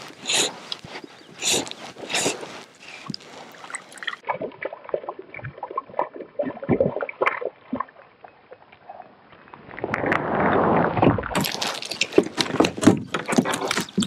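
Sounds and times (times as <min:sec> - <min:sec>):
brief rasping strokes: 0:00.0 - 0:04.1.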